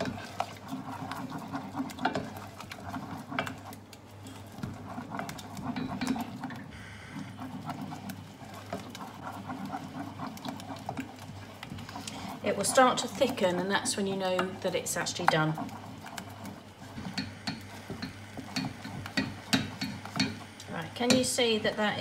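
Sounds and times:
wooden spoon scraping saucepan: 0:00.0 - 0:22.0.

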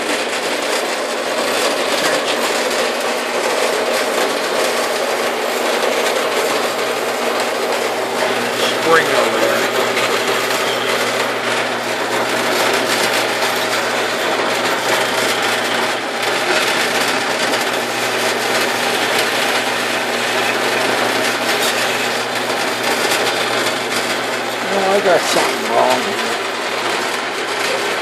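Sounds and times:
bandsaw cutting steel bar: 0:24.0 - 0:26.4.

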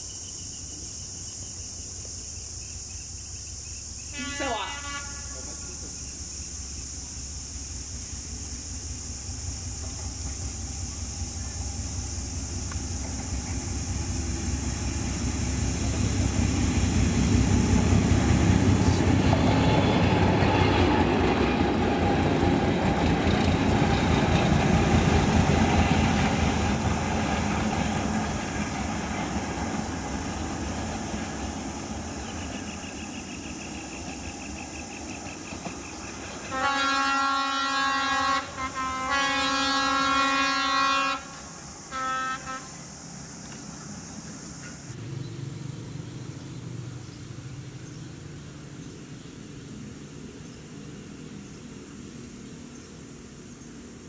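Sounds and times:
locomotive horn blasts: 0:04.1 - 0:05.6, 0:19.7 - 0:21.2, 0:36.5 - 0:42.8
locomotive engine rumble passing: 0:04.4 - 0:54.0.

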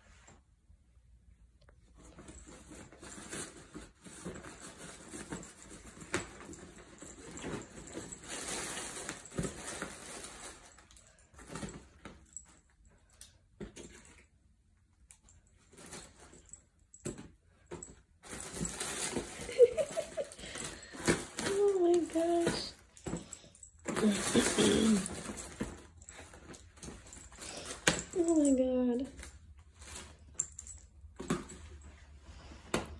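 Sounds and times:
fabric tunnel rustling: 0:23.8 - 0:30.4.

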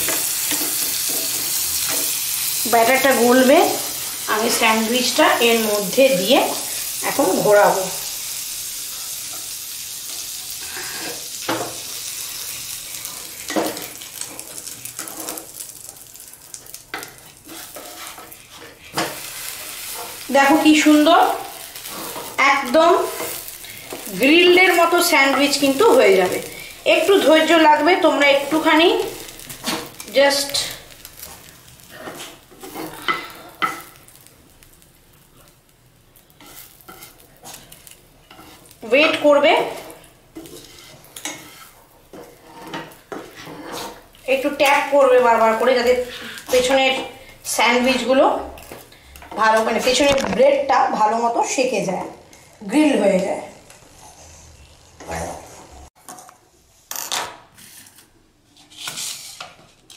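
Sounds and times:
butter sizzling in a frying pan: 0:00.0 - 0:55.0
wooden spatula scraping pan: 0:12.4 - 0:16.0, 0:16.9 - 0:30.4, 0:31.2 - 0:34.0, 0:36.4 - 0:50.6, 0:58.6 - 0:59.9.

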